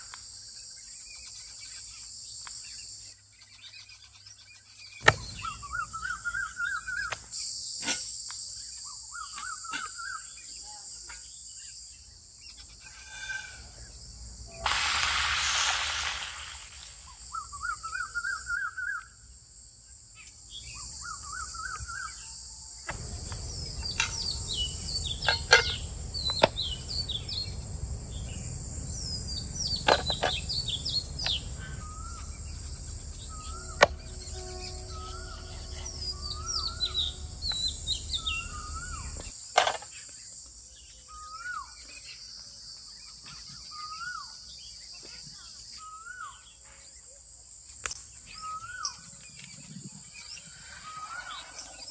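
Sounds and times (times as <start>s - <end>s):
birds chirping: 3.4s - 7.8s, 20.2s - 40.1s
high insect buzz: 10.9s - 18.1s, 21.0s - 39.5s.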